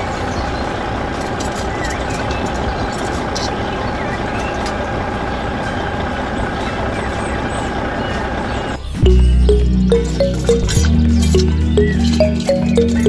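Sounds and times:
music with deep bass and plucked notes: 9.0s - 13.0s.

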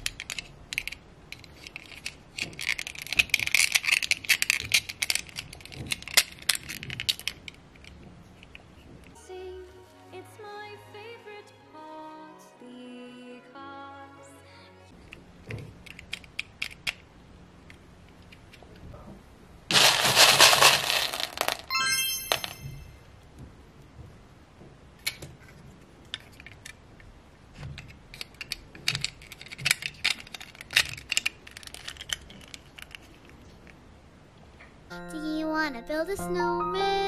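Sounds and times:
plastic beads clicking and rattling: 0.0s - 8.8s, 19.7s - 22.8s, 27.8s - 33.5s
brief chime: 21.7s - 23.0s.

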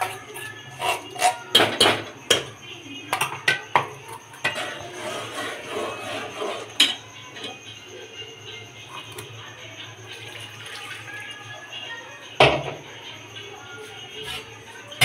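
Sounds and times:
metal spoon scraping pot: 0.0s - 2.4s, 4.4s - 7.6s.

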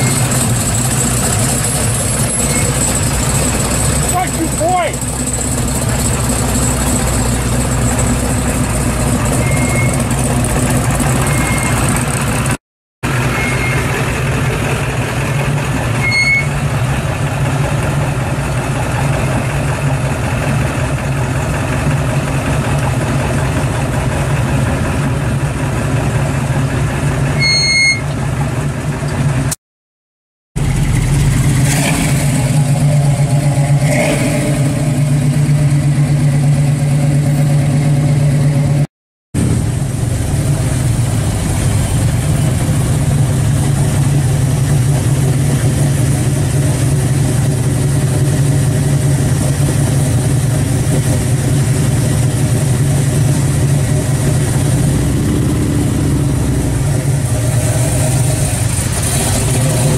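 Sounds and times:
car engines idling: 0.0s - 29.5s, 30.6s - 38.8s, 39.4s - 59.9s
car engine revving: 30.6s - 38.8s, 39.4s - 59.9s.

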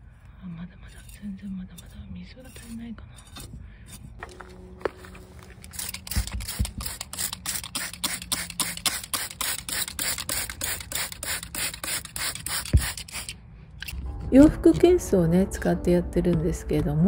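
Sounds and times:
spray bottle squirting: 5.6s - 13.9s.

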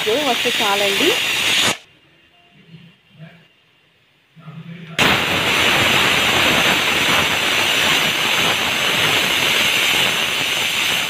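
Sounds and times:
pressure cooker steam hissing: 0.0s - 1.8s, 5.0s - 11.0s.

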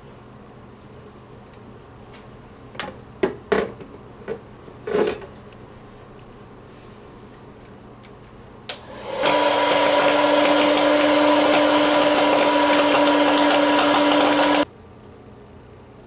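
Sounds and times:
popcorn maker fan humming: 8.7s - 14.7s.

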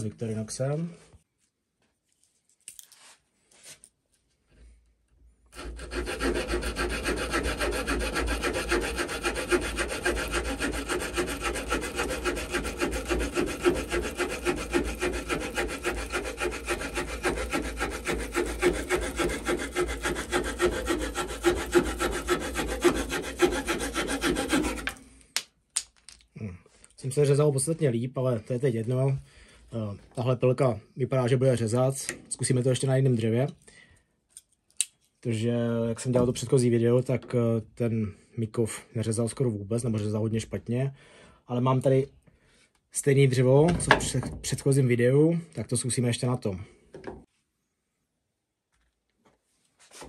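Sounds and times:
saw rasping through wood: 5.5s - 25.1s.

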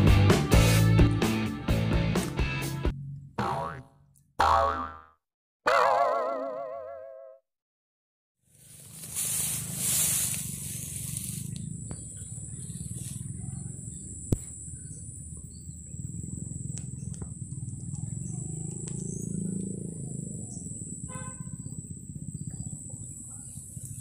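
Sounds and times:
low microphone rumble: 9.5s - 24.0s
faint clicks and chirps: 11.0s - 20.8s, 21.6s - 24.0s.

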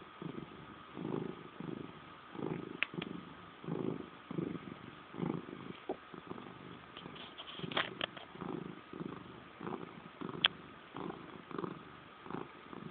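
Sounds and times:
cat purring: 0.0s - 12.9s
faint clicks: 2.8s - 3.1s.

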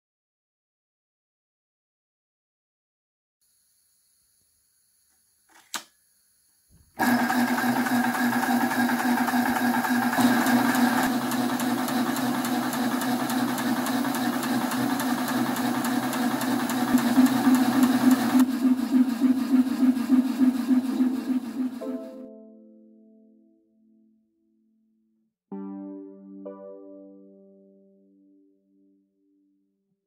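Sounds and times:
compressor humming and ticking: 7.0s - 21.8s.

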